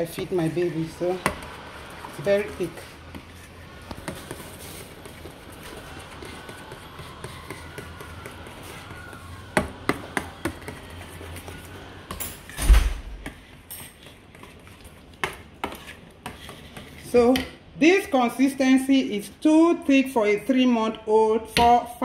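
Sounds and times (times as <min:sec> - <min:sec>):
metal spoon stirring thick porridge: 0:00.0 - 0:12.5, 0:13.2 - 0:17.4.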